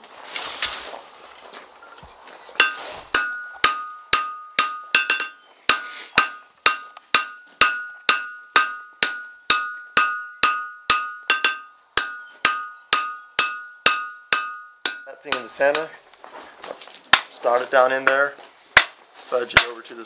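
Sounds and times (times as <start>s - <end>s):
hammer striking hot steel on anvil: 2.6s - 16.0s.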